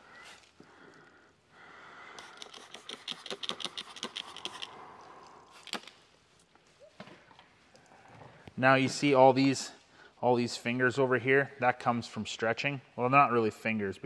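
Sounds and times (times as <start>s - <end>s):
spray bottle spritzing: 2.2s - 4.7s.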